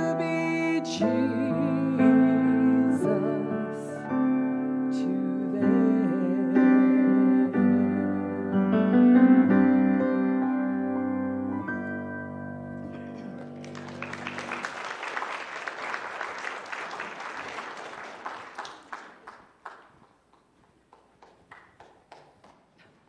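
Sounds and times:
piano chord ringing: 7.7 - 13.7
audience applause: 13.2 - 22.8.

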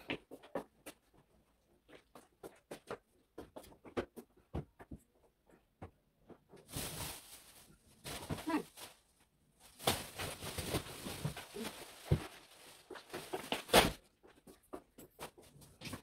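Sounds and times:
household items rustling and scraping: 6.2 - 16.0.

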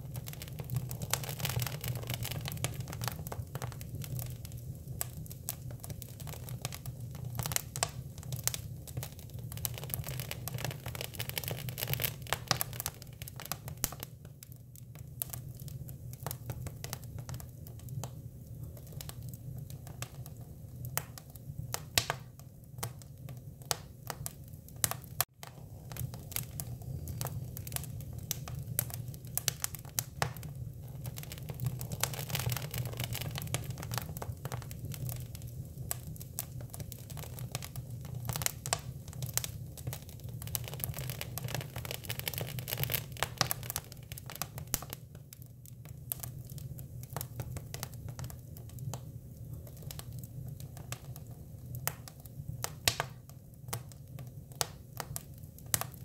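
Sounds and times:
wood fire crackling and popping: 0.0 - 56.0.

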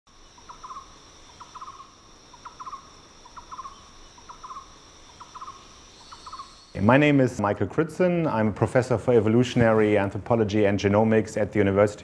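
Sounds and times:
steady high-pitched drone: 0.1 - 10.4.

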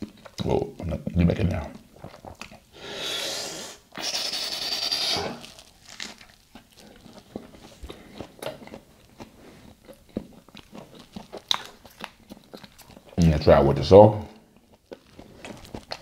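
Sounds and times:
chewing with wet clicks: 0.0 - 2.7, 6.0 - 13.6, 14.2 - 16.0
crunchy biting of food: 4.0 - 13.2.

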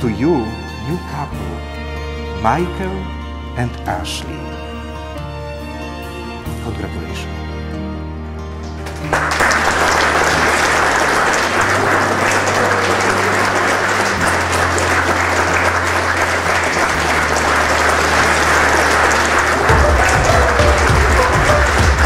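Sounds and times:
congregation applauding: 8.5 - 22.0.

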